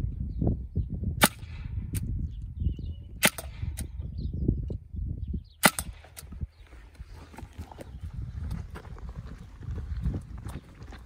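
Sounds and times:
air rifle cracks: 5.6 - 6.3.

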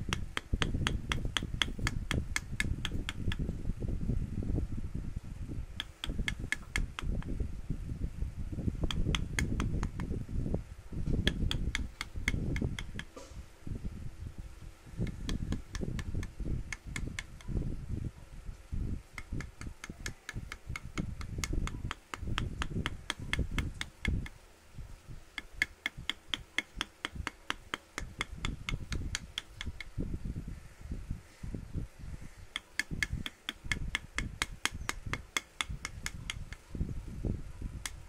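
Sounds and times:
hammer tapping chisel into wood: 0.1 - 3.4, 5.8 - 7.3, 8.9 - 10.1, 11.2 - 13.2, 15.0 - 17.5, 19.2 - 24.4, 25.4 - 29.9, 32.5 - 36.6.

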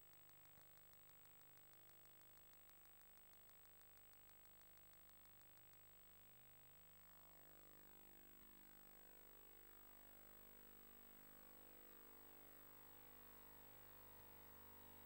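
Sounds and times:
faint ticks: 0.0 - 9.3
faint electrical hum and hiss: 0.0 - 15.0.

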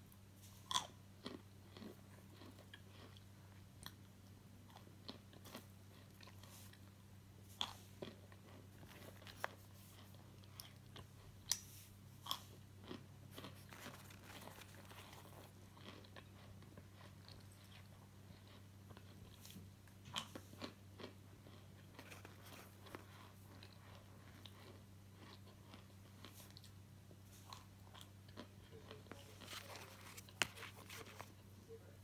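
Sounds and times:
faint electrical hum: 0.0 - 32.0
starch chunks crunching: 7.6 - 31.4.

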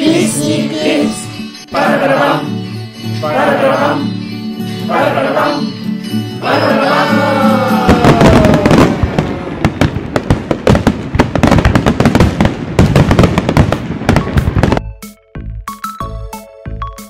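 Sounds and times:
song music: 0.0 - 8.9
fireworks exploding: 7.7 - 14.8.

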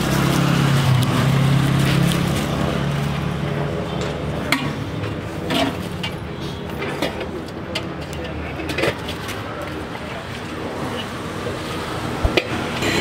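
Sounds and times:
engine running low hum: 0.0 - 6.8.

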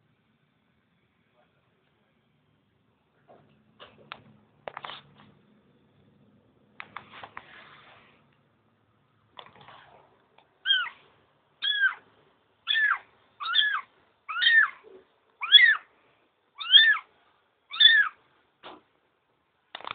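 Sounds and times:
kitten meowing: 10.6 - 11.0, 11.6 - 12.0, 12.7 - 14.8, 15.4 - 15.9, 16.6 - 17.1, 17.7 - 18.2.

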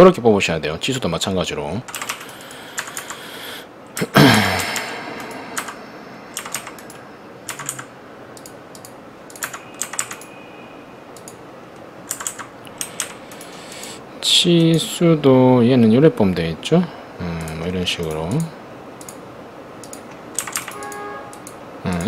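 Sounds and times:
computer keyboard typing: 1.9 - 3.2, 4.6 - 10.3, 11.2 - 11.4, 12.0 - 13.6, 19.8 - 22.0.

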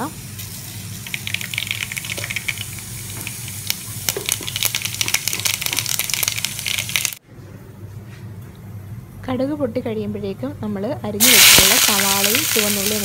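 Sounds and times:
mustard seeds sizzling and popping in oil: 0.4 - 7.2, 11.2 - 13.0.

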